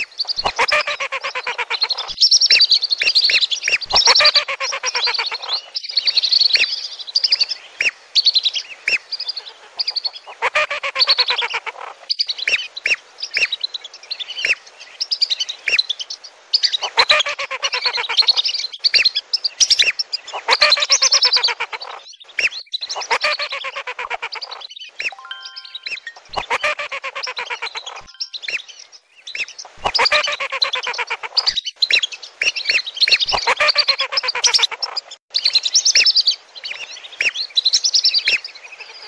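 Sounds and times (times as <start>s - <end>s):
ducks giving whistled calls: 0.0s - 2.1s, 3.3s - 5.5s, 19.7s - 34.9s.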